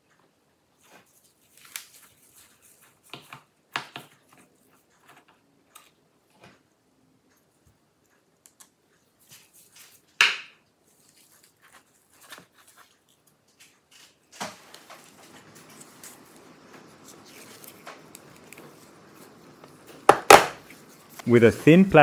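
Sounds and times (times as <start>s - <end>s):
faint steady hiss: 0.0s - 22.0s
sharp knock on desk: 20.1s - 20.6s.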